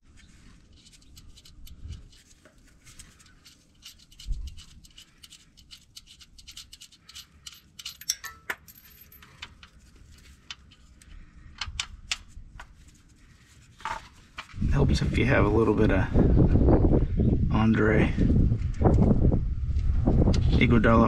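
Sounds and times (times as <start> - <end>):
metallic clicks of hardware: 0.7 - 9.8.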